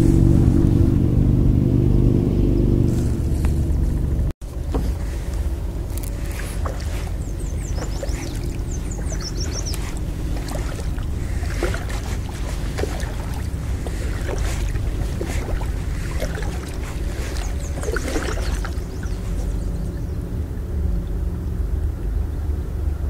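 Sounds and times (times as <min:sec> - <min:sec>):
wind rumble on microphone: 0:00.0 - 0:23.0
songbird chirping: 0:04.7 - 0:20.4
water splashing and dripping: 0:05.3 - 0:20.2.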